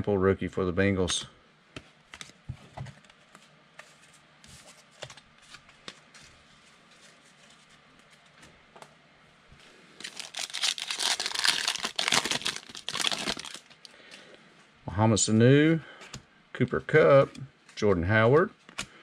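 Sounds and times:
foil wrapper crinkling and tearing: 10.0 - 14.0.

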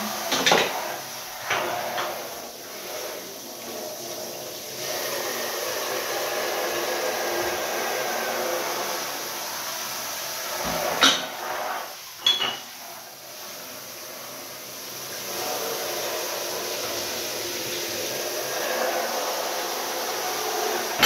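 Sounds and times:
shower water spraying into bottles: 0.0 - 21.0
glass bottles clinking: 12.2 - 12.7.

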